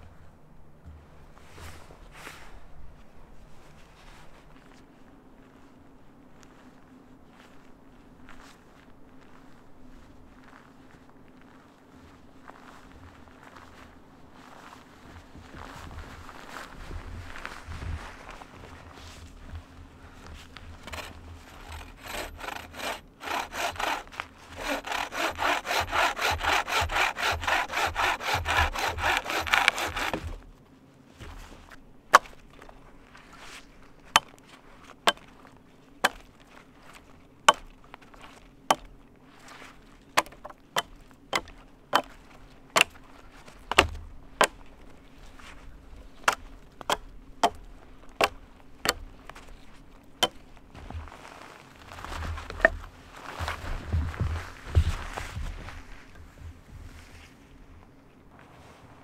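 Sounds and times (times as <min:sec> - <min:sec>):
hatchet chopping branch: 0:20.8 - 0:30.4, 0:40.2 - 0:42.1, 0:42.8 - 0:43.0, 0:43.7 - 0:44.6
saw cutting through branch: 0:20.8 - 0:30.4, 0:40.2 - 0:42.1, 0:43.7 - 0:44.0.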